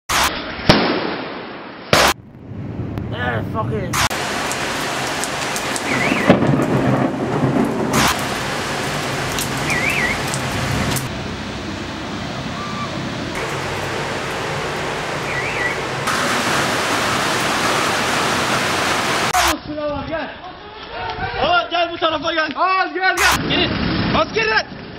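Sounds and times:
heavy rain pouring: 4.0s - 19.6s
low rumble of thunder: 5.8s - 16.8s.

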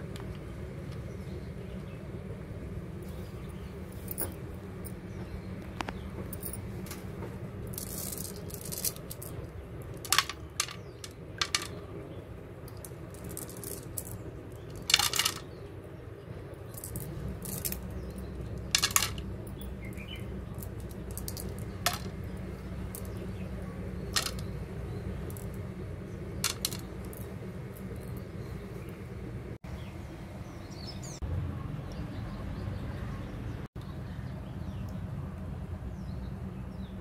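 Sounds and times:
low steady rumble: 0.0s - 37.0s
pebbles clicking and clattering: 7.7s - 11.8s, 12.7s - 15.5s, 16.7s - 19.3s, 20.5s - 23.3s, 24.0s - 24.6s, 25.2s - 25.6s, 26.4s - 28.2s.

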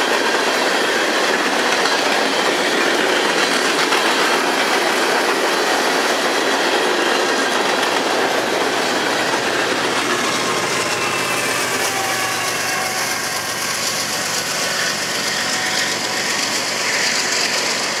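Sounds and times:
diesel locomotive engines running: 0.0s - 18.0s
faint wheel squeal: 10.0s - 18.0s.

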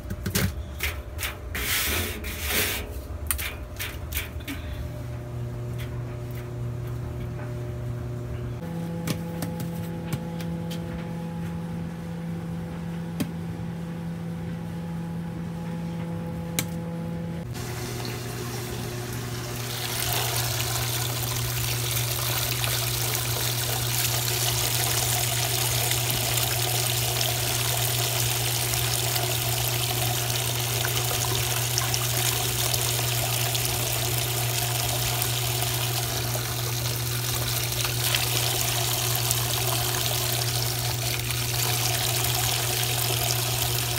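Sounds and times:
washing machine hum: 0.0s - 43.9s
water spraying into tub: 17.5s - 43.9s.

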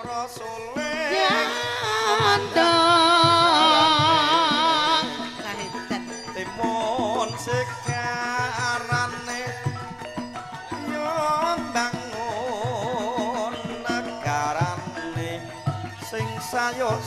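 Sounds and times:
hand drum beats: 0.0s - 17.0s
woman singing with vibrato: 0.9s - 7.5s.

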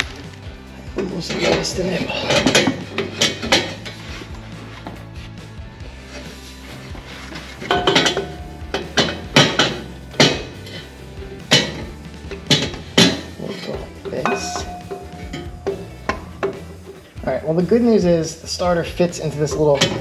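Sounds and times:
metal clanks and knocks: 0.9s - 5.1s, 7.2s - 17.3s, 19.2s - 20.0s.

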